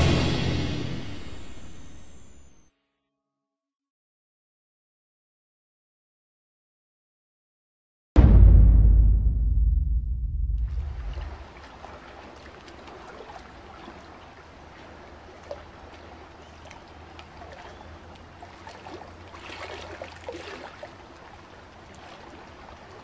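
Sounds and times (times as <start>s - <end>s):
low steady hum: 8.2s - 12.1s
pool water lapping and sloshing: 10.9s - 23.0s
small splashes and bubbly clicks: 11.1s - 23.0s.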